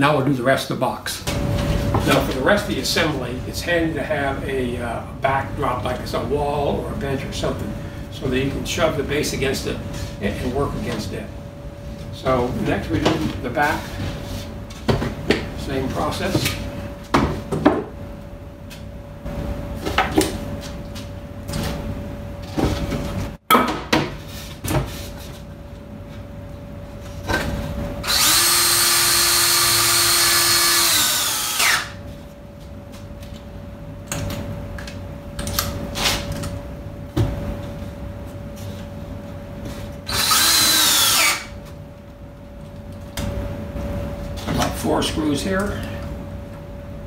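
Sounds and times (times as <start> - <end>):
cordless drill driving screws: 28.0 - 32.0, 40.1 - 41.5.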